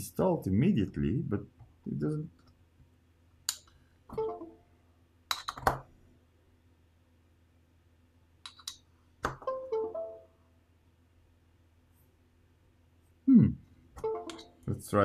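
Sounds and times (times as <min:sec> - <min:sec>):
multi-note device chime: 0:09.5 - 0:10.3.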